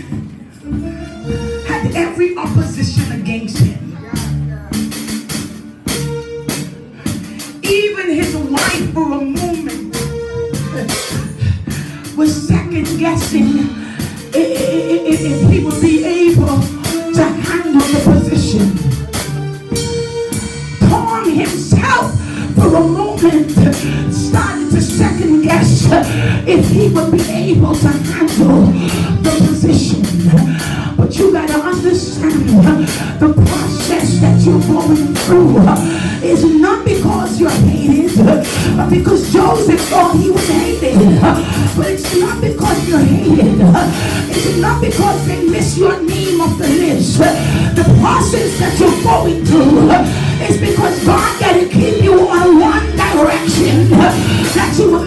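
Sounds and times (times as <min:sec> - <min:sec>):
band with drums and cymbals: 0:00.0 - 0:55.0
gospel singing: 0:14.2 - 0:16.2, 0:22.3 - 0:55.0.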